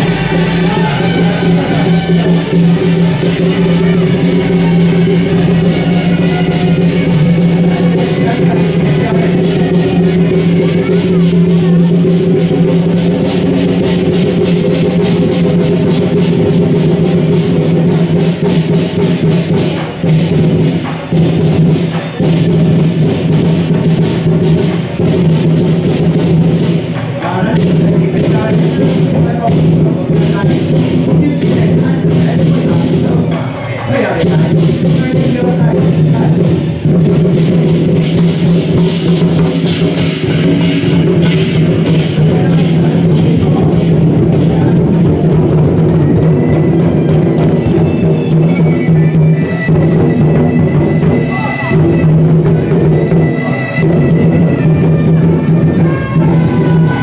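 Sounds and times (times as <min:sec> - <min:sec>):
cymbals clashing: 0:00.0 - 0:57.0
drums beating: 0:00.0 - 0:57.0.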